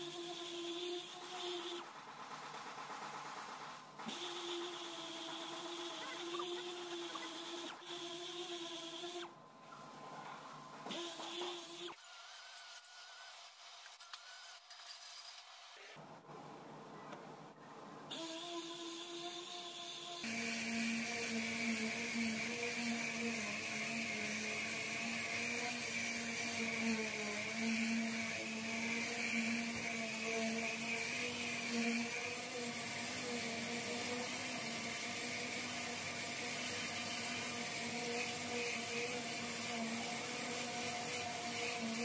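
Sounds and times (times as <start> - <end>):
orbital sander running: 18.2 - 42.0.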